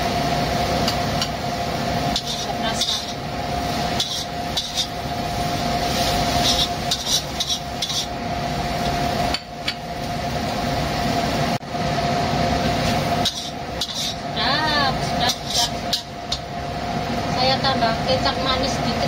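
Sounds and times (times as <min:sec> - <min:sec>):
cooking hiss: 0:00.0 - 0:19.0
spatula scraping pan: 0:02.1 - 0:03.2, 0:03.8 - 0:05.0, 0:05.8 - 0:08.2, 0:13.2 - 0:14.3, 0:15.1 - 0:16.1.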